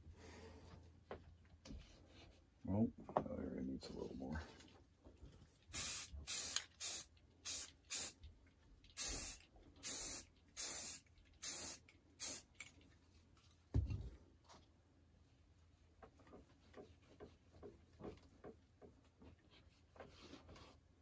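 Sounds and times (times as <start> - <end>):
spray paint can hissing: 5.7 - 8.2, 9.0 - 12.6.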